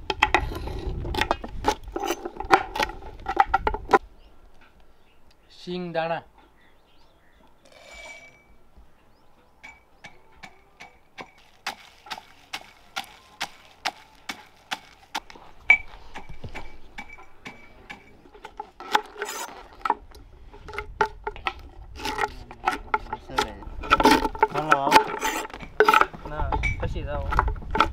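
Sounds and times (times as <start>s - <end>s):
pestle pounding in metal mortar: 10.8s - 19.2s.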